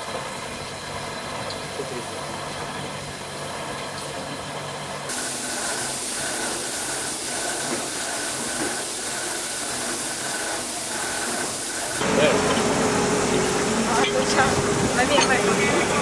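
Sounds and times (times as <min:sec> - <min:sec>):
steam locomotive hissing: 0:05.0 - 0:16.0.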